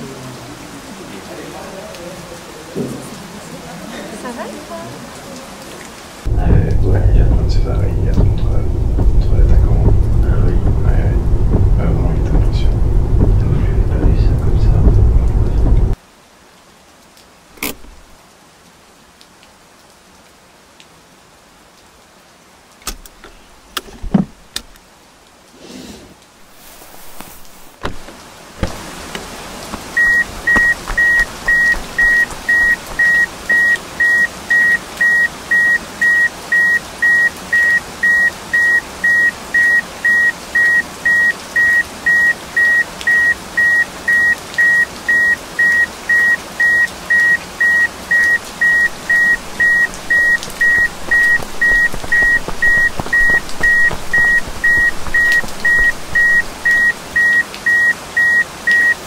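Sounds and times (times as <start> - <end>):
steady ambient hiss: 6.2 - 16.8
scattered clicks and knocks: 6.3 - 16.0, 27.8 - 33.7, 48.3 - 56.9
high-pitched electronic beeps: 30.0 - 59.0.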